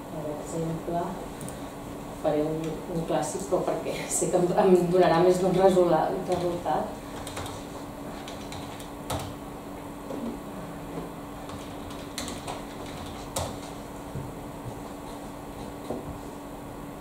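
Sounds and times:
steady low hum: 0:00.0 - 0:17.0
computer keyboard clicks: 0:07.2 - 0:07.6, 0:08.2 - 0:09.4, 0:11.5 - 0:13.8.

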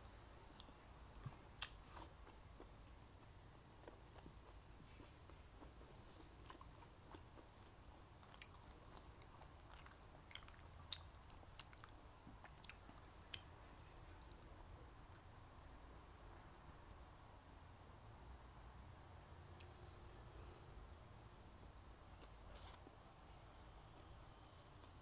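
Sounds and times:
faint chewing: 0:00.0 - 0:15.4.

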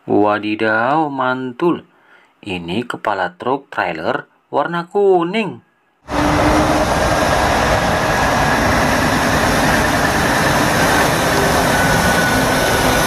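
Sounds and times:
truck diesel engine running: 0:06.1 - 0:13.0.

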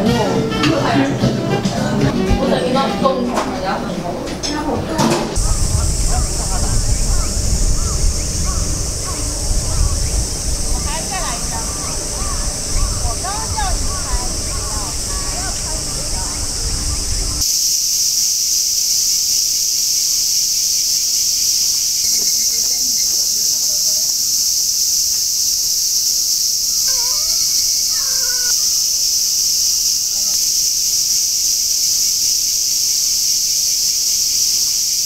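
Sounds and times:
faint distant voices: 0:00.0 - 0:17.4, 0:26.6 - 0:28.9
cicadas droning: 0:02.0 - 0:35.0.

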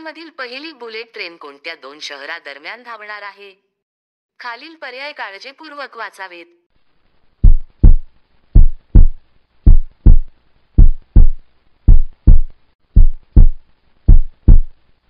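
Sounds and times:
heartbeat thumps: 0:07.4 - 0:14.8.

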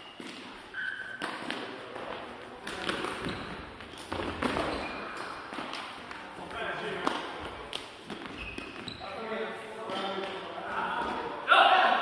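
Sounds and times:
shoe squeaks: 0:00.0 - 0:01.5, 0:03.1 - 0:05.5, 0:08.1 - 0:09.3.

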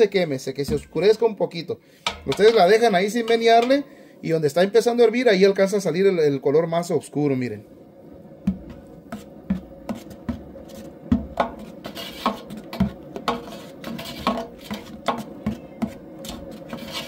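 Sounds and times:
metal spoon scraping a pot: 0:11.8 - 0:17.0.

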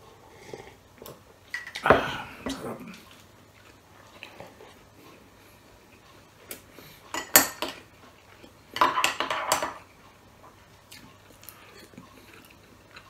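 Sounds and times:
metal spoon clinking on tableware: 0:07.1 - 0:07.8.

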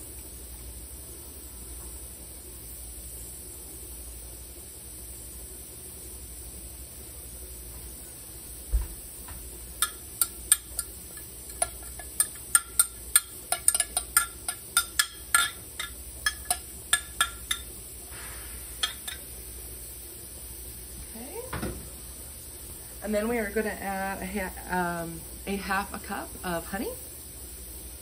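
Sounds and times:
metal spoon clinking in glass cup: 0:09.8 - 0:17.7, 0:18.8 - 0:19.3.

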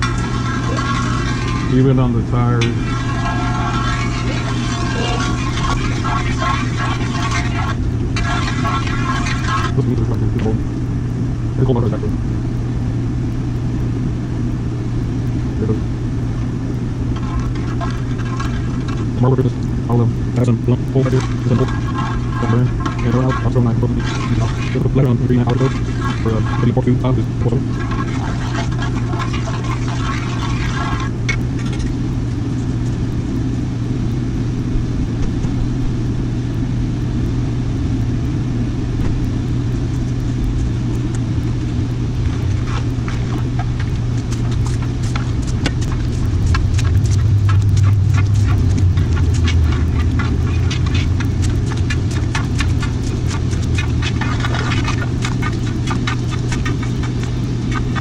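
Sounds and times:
metal ladle scraping iron wok: 0:00.0 - 0:10.0, 0:17.2 - 0:19.3, 0:20.4 - 0:31.9, 0:42.3 - 0:58.0
gas burner roaring: 0:00.0 - 0:58.0.

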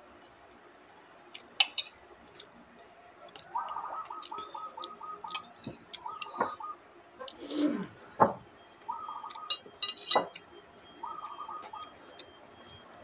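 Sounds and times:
metal spoon clinking on a dish: 0:09.3 - 0:10.4.

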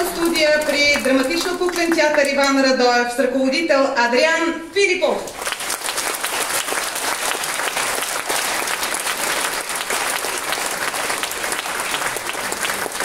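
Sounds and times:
audience applauding: 0:00.0 - 0:02.4, 0:05.3 - 0:13.0.

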